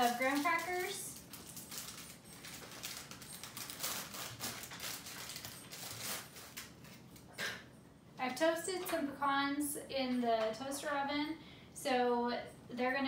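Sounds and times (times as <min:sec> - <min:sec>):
plastic wrapper crinkling: 0:00.0 - 0:07.3.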